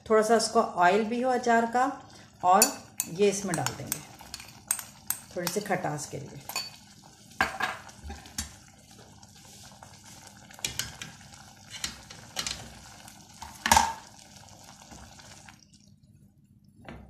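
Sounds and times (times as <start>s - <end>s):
curry bubbling in a pot: 1.9s - 16.1s
tongs clinking on metal pot: 2.6s - 5.7s, 6.5s - 6.8s.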